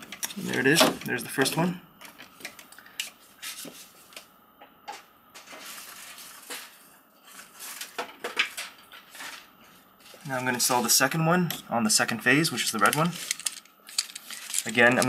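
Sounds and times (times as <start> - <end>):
wires and plastic clicking: 12.6 - 15.0.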